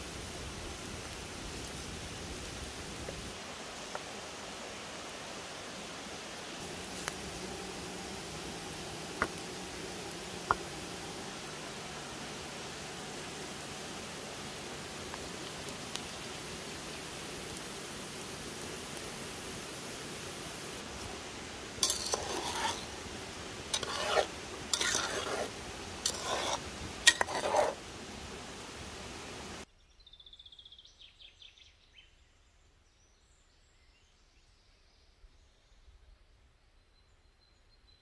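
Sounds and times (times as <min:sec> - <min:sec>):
jam simmering in a pot: 0:06.6 - 0:19.1, 0:20.6 - 0:29.7
metal skimmer scraping a pot: 0:21.8 - 0:23.0, 0:23.7 - 0:27.8
faint bird chirps: 0:29.7 - 0:38.0.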